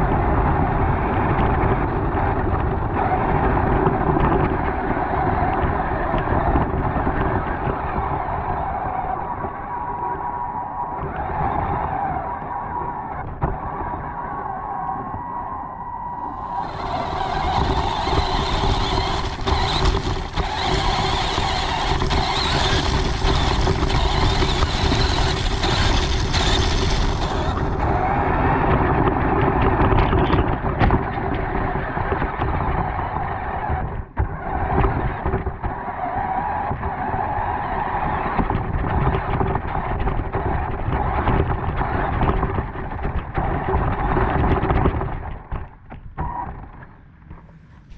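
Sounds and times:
rc car motor whine: 0.0 - 47.9.

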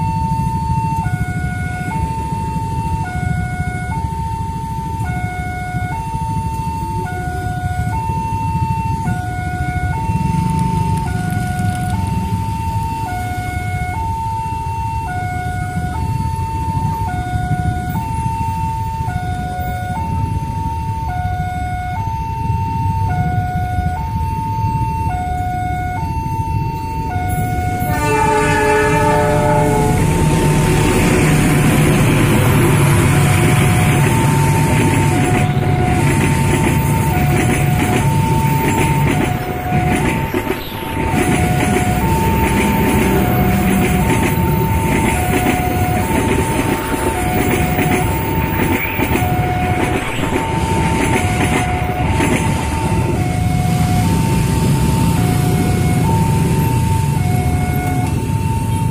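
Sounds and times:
level-crossing siren two-tone warning: 0.0 - 58.9
train rumble and rail noise: 0.0 - 58.9
train horn: 27.3 - 53.8.

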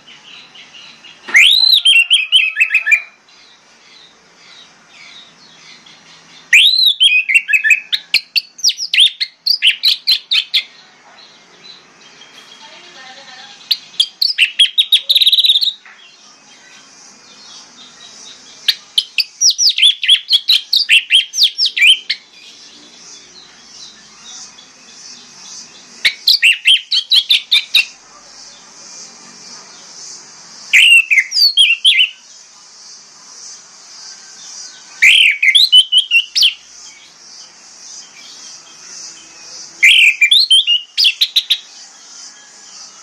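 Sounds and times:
thrush whistling song: 1.1 - 3.2, 6.1 - 10.7, 13.6 - 15.8, 18.7 - 22.6, 25.6 - 28.0, 30.7 - 32.3, 34.1 - 36.8, 38.0 - 43.0.

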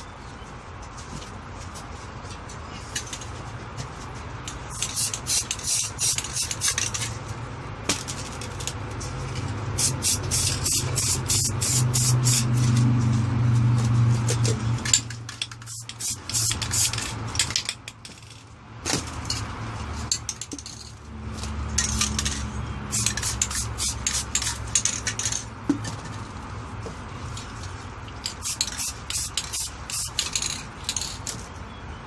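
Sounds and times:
spray paint can hissing: 4.7 - 7.1, 9.8 - 12.7, 15.4 - 17.6, 22.0 - 25.4, 28.2 - 31.1.

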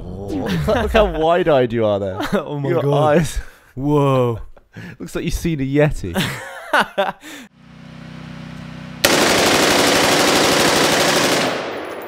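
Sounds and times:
automatic gunfire burst: 9.0 - 12.0.

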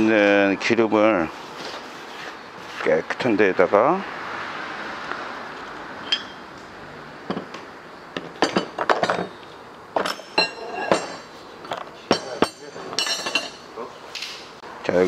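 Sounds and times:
metal parts clinking on tray: 8.4 - 9.4, 10.0 - 13.6.

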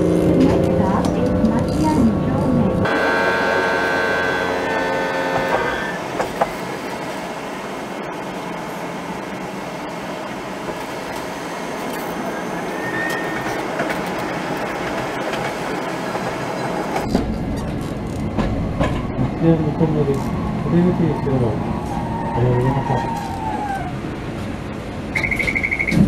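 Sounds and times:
tram wheels rushing on rail: 0.0 - 26.0.

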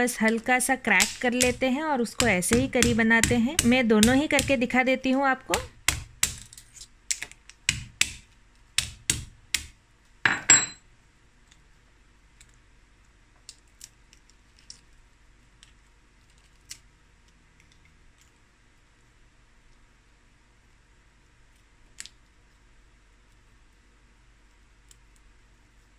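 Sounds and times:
metal pestle knocking on crab legs: 1.0 - 1.6, 2.2 - 4.6, 5.5 - 6.4, 7.7 - 8.2, 8.8 - 9.7
crab shell cracking: 5.8 - 8.2.

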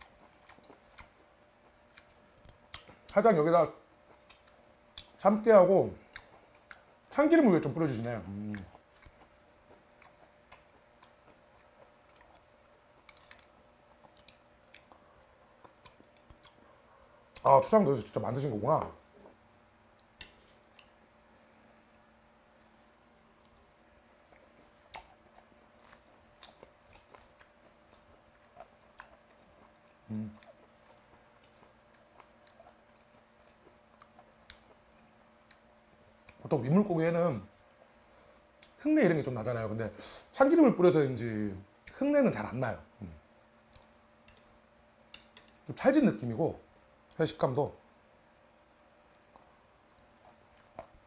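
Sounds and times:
quiet chewing: 0.0 - 5.2, 5.9 - 17.7, 19.0 - 21.8, 22.5 - 36.5, 37.5 - 38.8, 43.0 - 45.8, 47.8 - 51.0
chopsticks clicking against dishes: 43.8 - 44.5, 45.1 - 45.6.

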